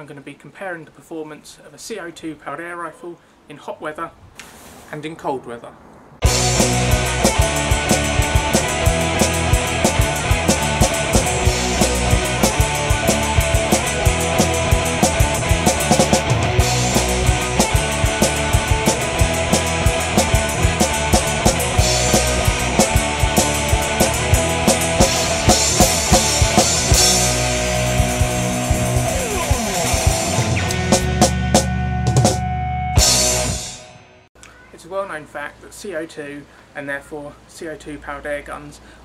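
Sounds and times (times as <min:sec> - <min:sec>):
rock music with driving drums: 0:06.2 - 0:34.3.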